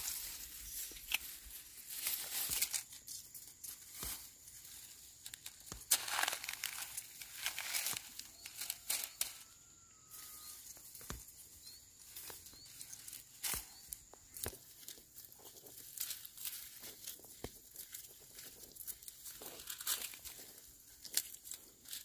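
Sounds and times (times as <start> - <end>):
dry plant stalks rustling: 0.0 - 22.0
sharp snaps of stalks: 13.1 - 14.6.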